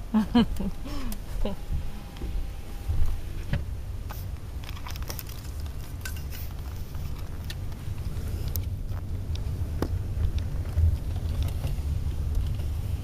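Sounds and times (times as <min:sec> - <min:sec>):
car road and engine rumble: 0:00.0 - 0:13.0
light clicks and rattles: 0:03.0 - 0:12.8.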